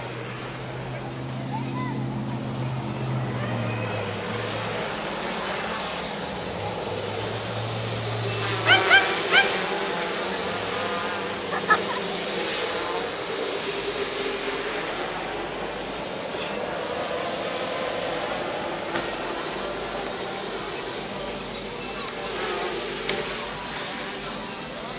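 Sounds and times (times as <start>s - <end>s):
drone propellers buzzing: 0.0s - 24.9s
dog barking: 8.6s - 9.7s.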